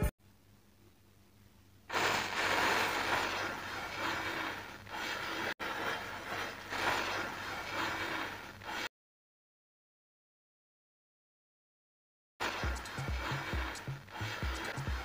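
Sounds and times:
matches igniting with fizzing hiss: 1.9s - 8.9s, 12.4s - 15.0s.

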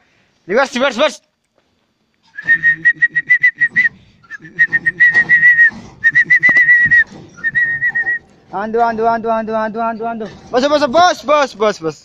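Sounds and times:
faint low hum: 0.0s - 12.0s
high-pitched whistle blasts: 2.3s - 8.2s.

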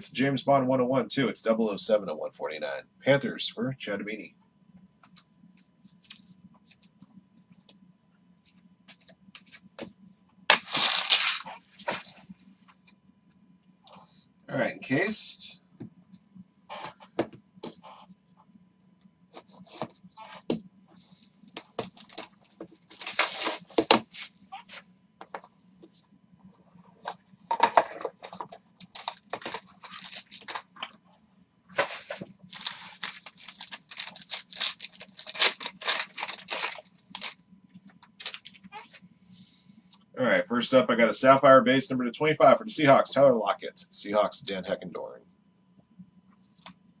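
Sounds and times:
faint low hum: 0.0s - 47.0s
plastic wrap tearing and crinkling: 10.5s - 12.2s, 21.5s - 24.7s, 27.6s - 30.7s, 31.8s - 37.4s, 38.2s - 38.8s.

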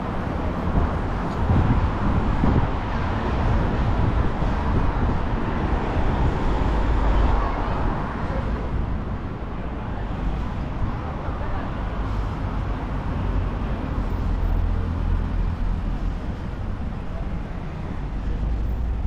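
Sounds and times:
cars passing on busy street: 0.0s - 19.0s.

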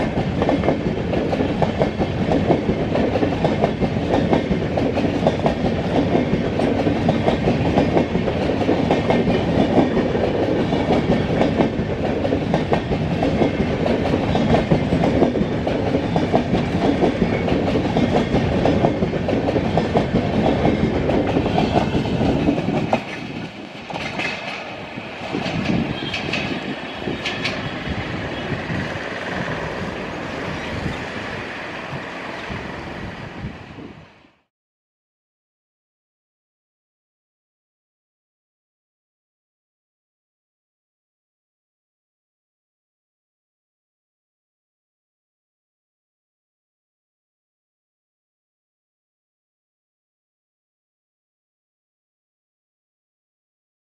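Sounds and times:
train wheels clattering on rails: 0.0s - 32.7s
train rumble: 0.0s - 34.4s.

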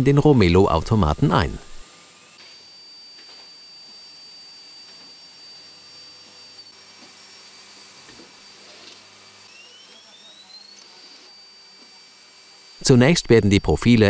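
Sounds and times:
machine electric whine: 0.0s - 14.0s
low hum: 0.3s - 1.8s.

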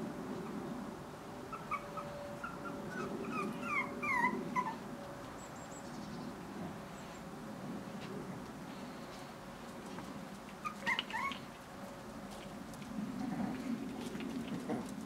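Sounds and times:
puppy whimpering: 1.5s - 4.8s, 10.6s - 11.5s.

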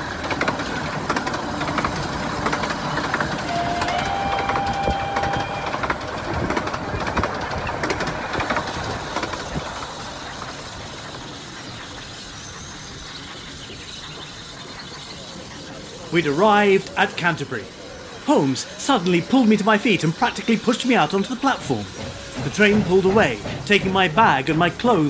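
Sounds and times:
steam train clattering: 0.0s - 25.0s
train whistle: 3.4s - 6.1s.

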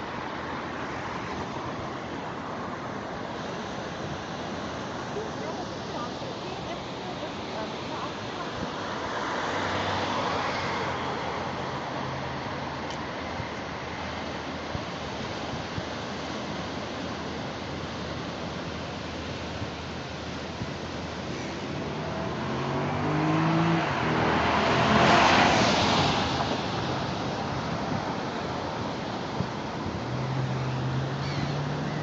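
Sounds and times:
surf washing: 0.0s - 32.0s
wind: 0.0s - 32.0s
vehicle accelerating past: 21.4s - 26.7s.

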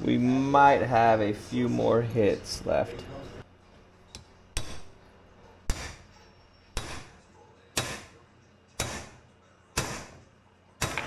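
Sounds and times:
hammer striking metal: 4.5s - 5.0s, 5.7s - 6.1s, 6.7s - 7.2s, 7.8s - 8.2s, 8.8s - 9.2s, 9.8s - 10.2s, 10.8s - 11.0s.

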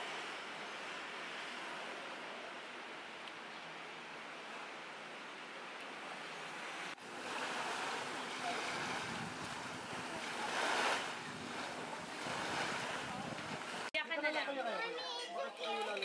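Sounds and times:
sea waves washing onto beach: 0.0s - 14.0s
wind on microphone: 7.3s - 13.9s.

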